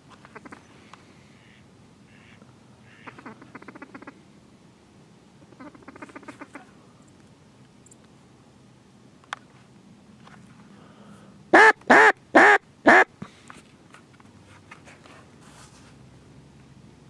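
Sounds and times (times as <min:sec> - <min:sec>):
faint short quacks: 0:01.3 - 0:04.2, 0:05.5 - 0:06.8
duck call quacks: 0:01.4 - 0:04.2, 0:05.5 - 0:06.7, 0:11.5 - 0:13.1.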